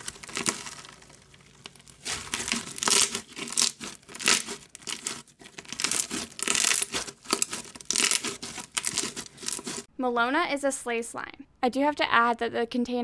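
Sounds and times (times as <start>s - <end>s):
slime crackling and popping: 0.0s - 9.9s.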